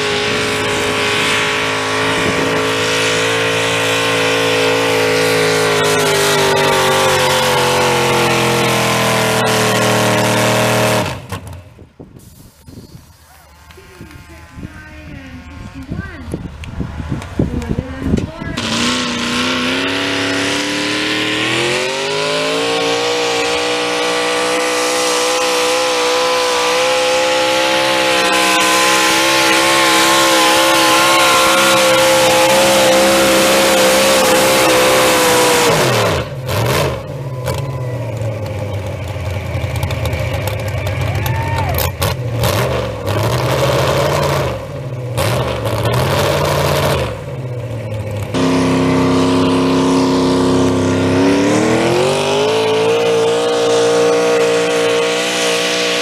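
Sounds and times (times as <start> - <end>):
tractor engine at full power: 0.0 - 56.0.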